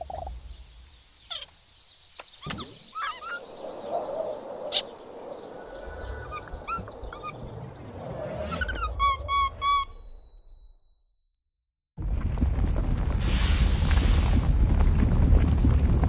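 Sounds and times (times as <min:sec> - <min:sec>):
steady jungle hiss: 0:00.0 - 0:06.3, 0:13.2 - 0:14.6
cartoon animal and bird calls: 0:01.3 - 0:01.6, 0:02.4 - 0:03.5, 0:08.5 - 0:10.6
sweeping glide effect: 0:03.4 - 0:09.8
low rumble: 0:03.4 - 0:09.9, 0:12.0 - 0:16.0.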